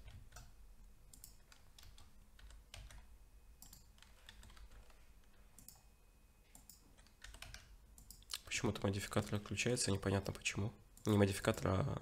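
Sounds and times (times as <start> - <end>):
keyboard and mouse clicks: 0.0 - 0.5, 1.1 - 5.8, 6.5 - 8.5, 9.1 - 9.5
low steady hum: 0.0 - 12.0.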